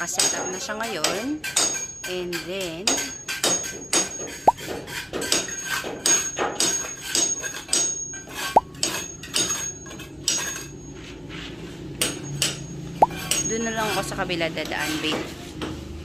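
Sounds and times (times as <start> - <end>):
hammering with metallic clinks: 0.0 - 10.9, 12.0 - 14.1.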